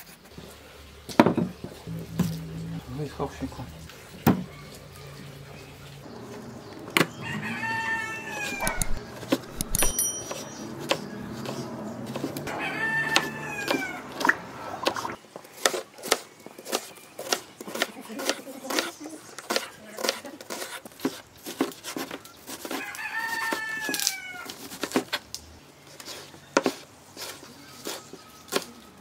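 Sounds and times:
rooster crowing: 7.0 - 9.9, 12.4 - 14.8, 22.7 - 24.6
knife chopping on wooden board: 8.6 - 12.4, 15.6 - 24.0.

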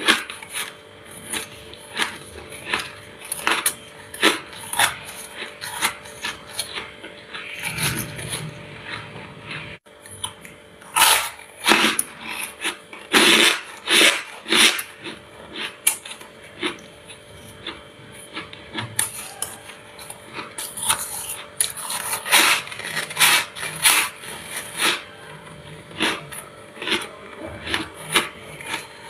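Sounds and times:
frost crunching: 0.0 - 29.0.

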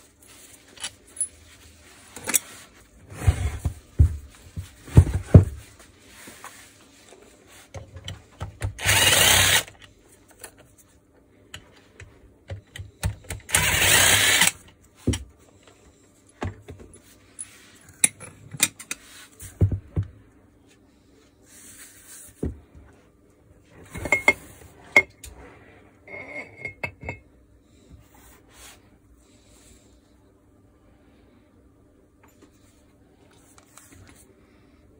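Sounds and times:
power driver running: 8.6 - 9.8, 13.4 - 14.6
parts clicking and knocking: 11.5 - 15.3.

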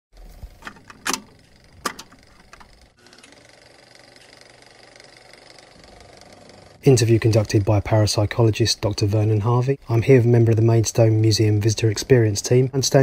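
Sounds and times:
crackling clicks: 0.2 - 5.7.

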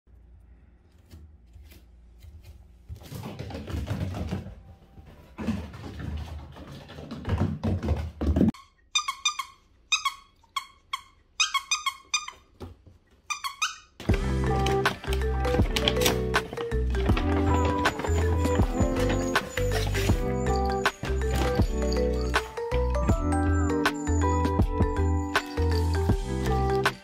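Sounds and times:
puppy squeaking: 8.6 - 12.6, 13.2 - 14.0
background music: 14.0 - 27.0
scuffling on wooden floor: 14.3 - 22.2.

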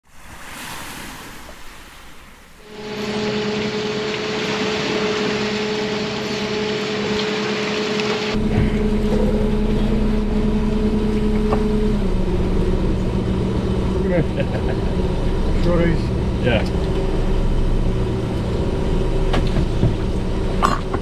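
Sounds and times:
sea and wind hiss: 0.0 - 8.4
boat engine humming: 2.5 - 21.0
deep rumble: 2.6 - 21.0.

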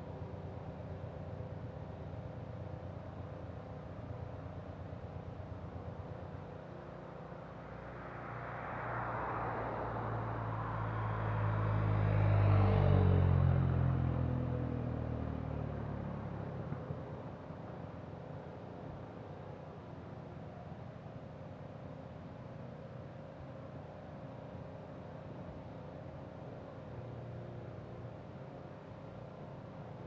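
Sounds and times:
pickup truck passing: 8.0 - 16.3.

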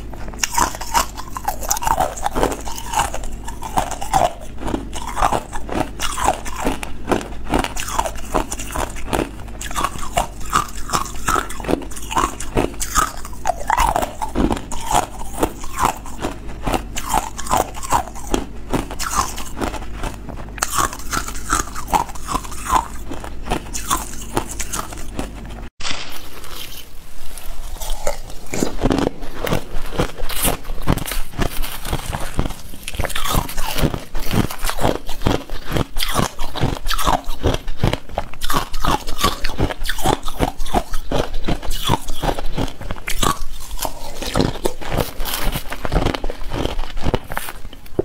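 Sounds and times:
ice cubes crunching: 0.0 - 48.0.

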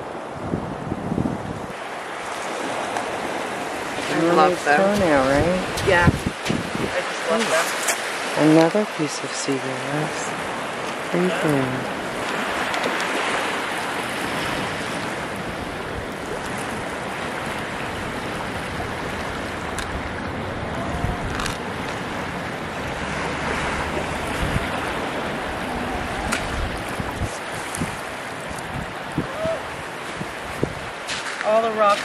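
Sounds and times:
wind buffeting microphone: 0.0 - 8.9, 9.9 - 32.0
surf washing onto beach: 0.0 - 32.0.

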